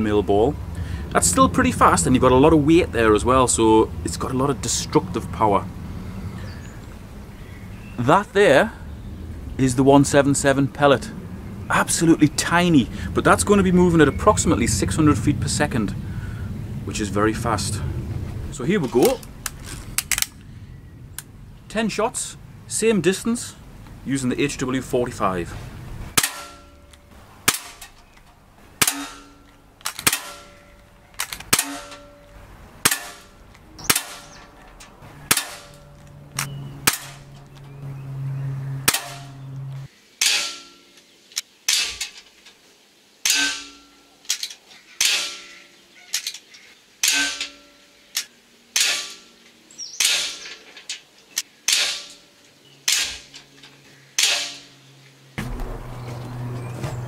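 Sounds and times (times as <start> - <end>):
air pistol shots: 26.2 - 26.7, 27.4 - 27.8, 28.8 - 30.6, 31.2 - 32.2, 32.8 - 34.4, 35.3 - 35.8, 36.4 - 37.2, 38.9 - 39.3, 48.7 - 49.2, 50.0 - 50.5, 51.7 - 52.2, 54.2 - 54.7
pellet ringing on steel trap: 28.8 - 30.8, 43.3 - 45.6.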